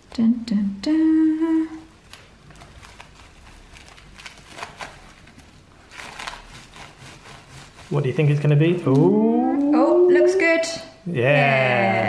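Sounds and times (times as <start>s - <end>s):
bamboo mat rustling and clicking: 2.0s - 7.1s.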